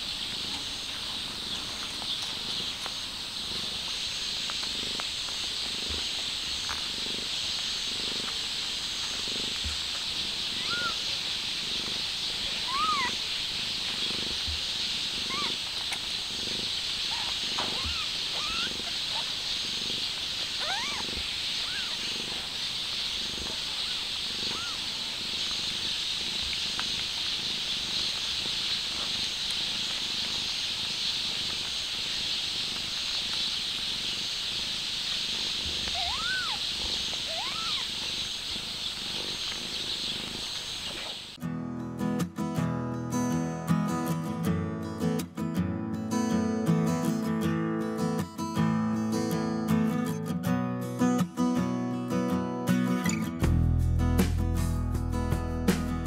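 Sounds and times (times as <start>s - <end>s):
cat purring: 0.0s - 41.4s
steady high hiss: 0.0s - 41.4s
kittens squeaking: 9.0s - 29.7s, 35.3s - 41.2s.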